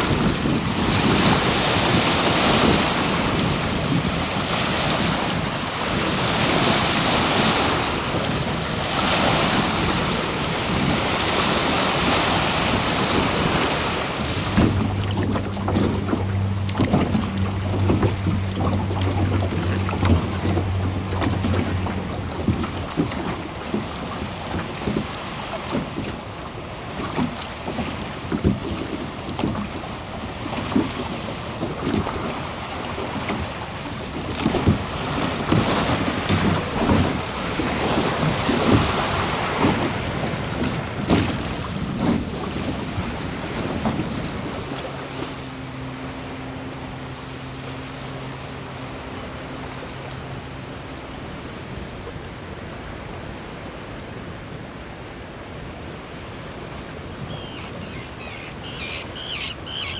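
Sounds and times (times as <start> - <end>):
wind buffeting microphone: 0.0 - 49.8
water splashing: 0.0 - 59.9
low hum of held tones: 43.1 - 53.6.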